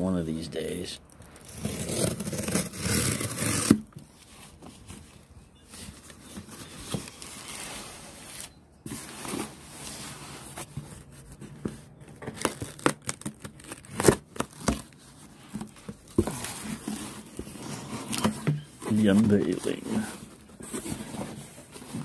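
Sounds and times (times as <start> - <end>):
knife cutting packing tape: 1.4 - 3.9, 12.3 - 14.9
cardboard flaps rustling: 1.4 - 22.0.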